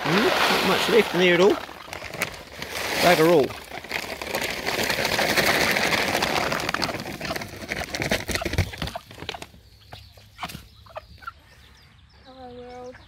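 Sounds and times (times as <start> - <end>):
chicken feed pouring onto ground: 0.0 - 9.5
hens pecking at grain: 0.0 - 11.4.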